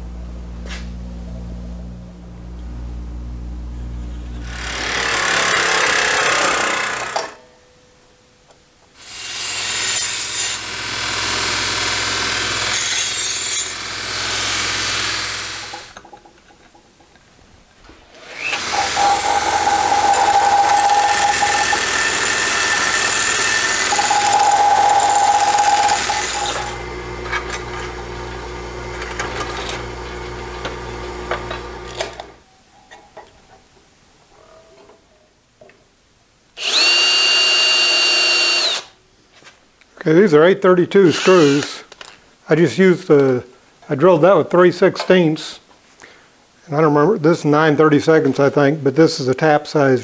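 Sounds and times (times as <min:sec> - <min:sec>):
belt grinder grinding metal: 0:04.4 - 0:07.4, 0:09.0 - 0:16.1, 0:18.1 - 0:32.4, 0:36.6 - 0:38.9, 0:41.1 - 0:41.8
drill press drilling: 0:04.4 - 0:07.4, 0:09.0 - 0:16.0, 0:18.2 - 0:32.4, 0:36.6 - 0:38.9, 0:41.1 - 0:41.7
cordless drill whirring: 0:09.0 - 0:16.0, 0:18.2 - 0:32.3, 0:36.6 - 0:39.0, 0:41.1 - 0:41.8.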